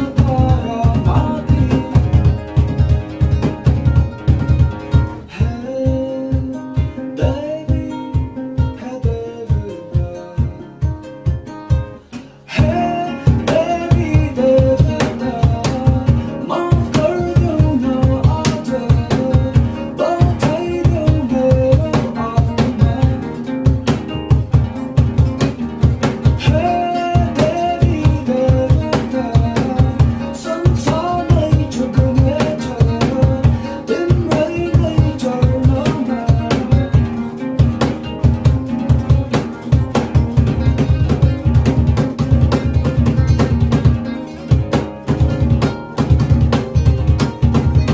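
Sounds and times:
man singing: 0.0s - 2.6s, 5.1s - 11.2s, 12.0s - 23.9s, 26.2s - 37.8s
acoustic guitars: 0.0s - 47.9s
hand percussion beat: 0.0s - 47.9s.

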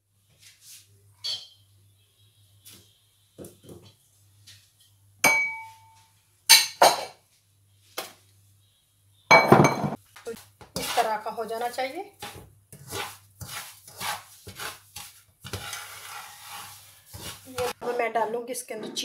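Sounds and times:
spatula scraping frying pan: 10.4s - 18.4s.

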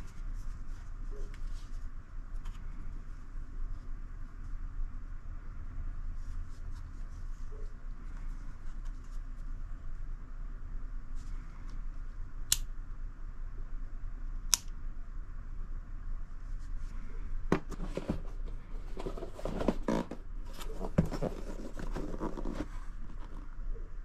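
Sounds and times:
cardboard scraping and rustling: 17.5s - 23.5s.

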